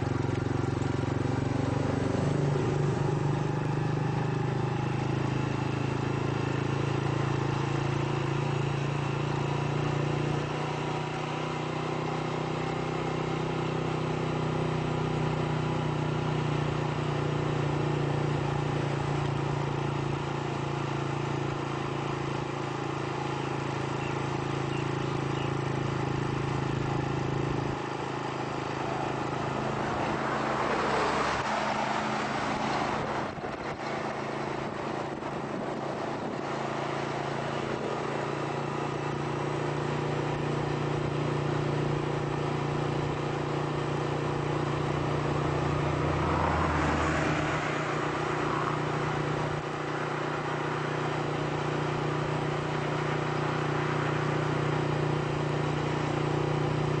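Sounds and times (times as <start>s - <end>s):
car engine hum and road noise: 0.0s - 57.0s.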